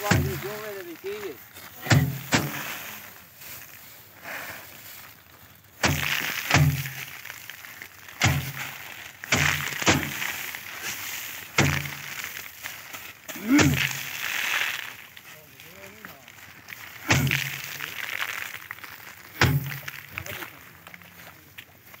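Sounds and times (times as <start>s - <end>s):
rice bundles thudding on drum: 0.0s - 3.1s, 5.8s - 16.0s, 16.6s - 20.6s
straw rustling and grain scattering: 0.0s - 22.0s.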